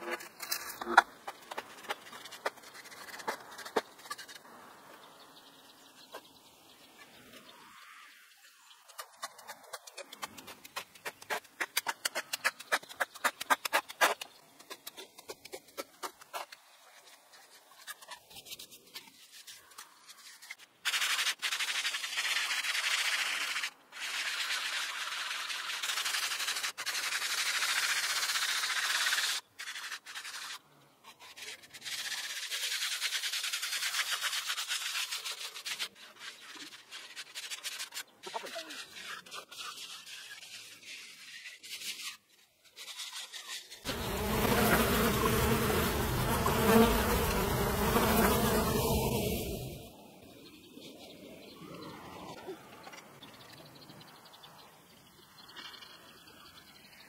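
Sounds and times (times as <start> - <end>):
quick sharp scrapes and taps: 0.0 - 4.5, 8.8 - 44.0
plastering float scraping cement: 29.6 - 48.4.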